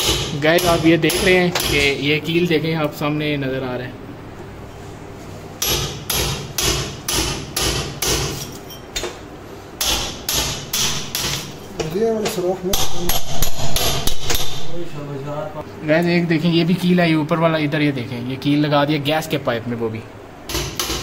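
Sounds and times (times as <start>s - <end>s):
hammer blows: 12.8s - 14.8s.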